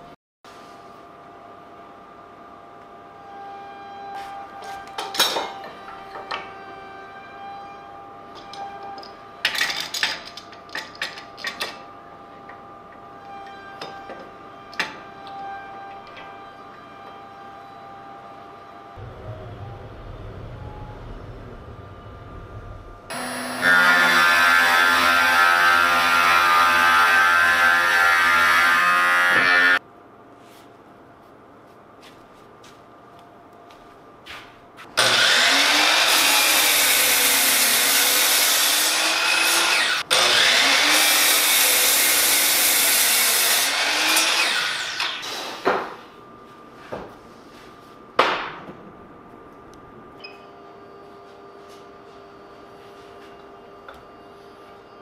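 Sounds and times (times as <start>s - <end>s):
electric cutting machine whining: 13.2s - 29.8s, 35.0s - 45.3s.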